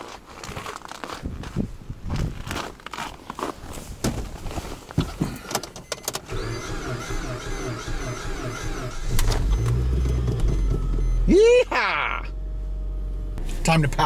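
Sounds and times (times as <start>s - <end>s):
rustling in car seat: 2.4s - 5.4s
starter cranking engine: 6.2s - 10.8s.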